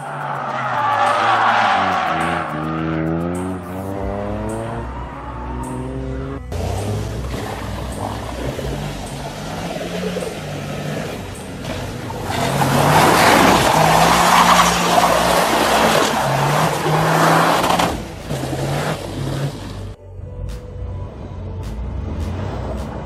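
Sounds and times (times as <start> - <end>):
car engine running: 0.0 - 20.0
tyres skidding and squealing: 0.0 - 20.0
background music: 0.0 - 23.0.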